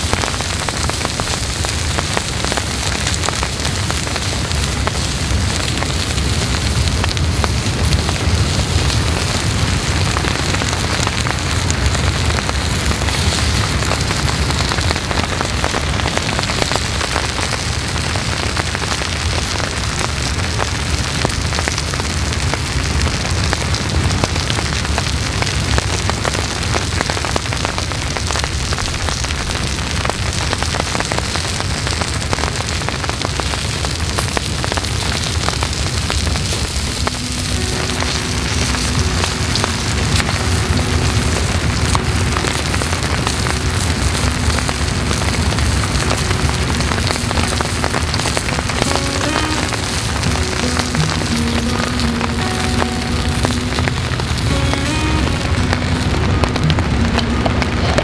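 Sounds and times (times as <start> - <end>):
light rain patter: 0.0 - 58.0
skewers sizzling on hot plate: 0.0 - 58.0
soft music with held tones: 36.4 - 58.0.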